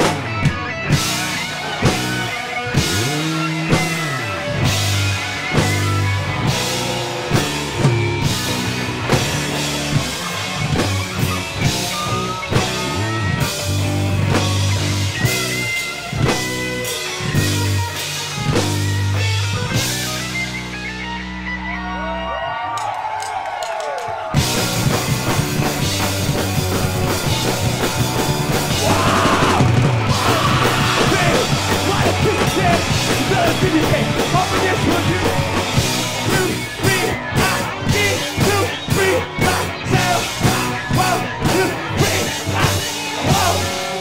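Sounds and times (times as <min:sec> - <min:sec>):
drum kit beating: 0:00.0 - 0:20.7, 0:22.8 - 0:44.0
electric bass: 0:00.0 - 0:22.5, 0:24.4 - 0:44.0
electric guitar: 0:00.0 - 0:22.9, 0:24.3 - 0:44.0.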